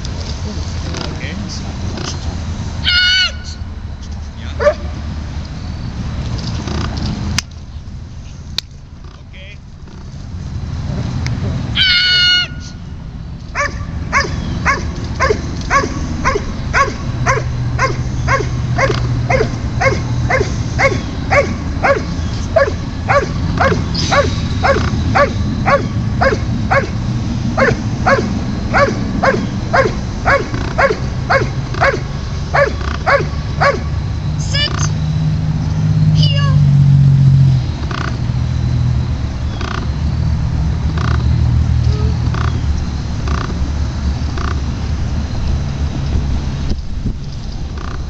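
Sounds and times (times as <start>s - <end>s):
loud high-pitched call: 2.8s - 3.7s, 11.7s - 12.8s
dog barking rhythmically: 4.6s - 4.9s, 13.6s - 34.0s.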